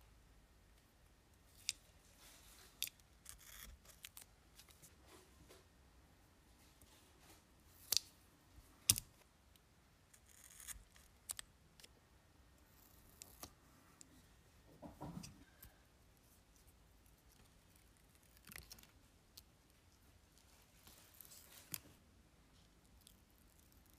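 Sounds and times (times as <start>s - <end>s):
tape backing peeling crackle: 17.1s - 19.5s.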